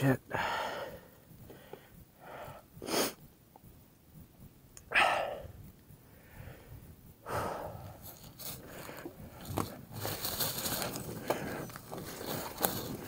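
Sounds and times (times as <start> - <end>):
bike tyres crunching on dirt: 8.0 - 13.0.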